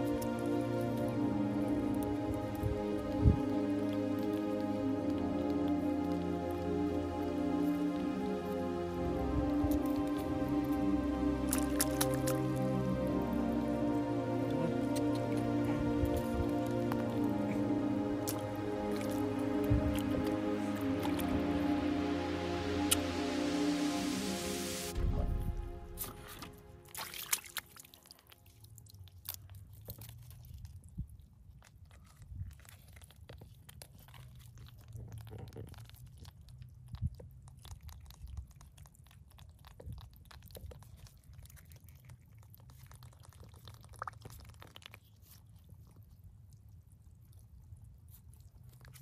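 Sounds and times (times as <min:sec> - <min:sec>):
low steady rumble: 0:00.0 - 0:28.0
wet squelches and splashes: 0:09.4 - 0:21.7, 0:26.0 - 0:49.0.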